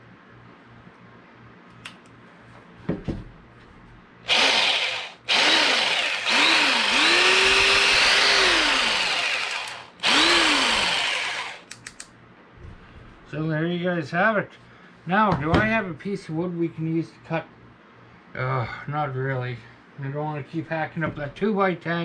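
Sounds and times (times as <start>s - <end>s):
jigsaw motor spinning up and down: 4.3s - 11.7s.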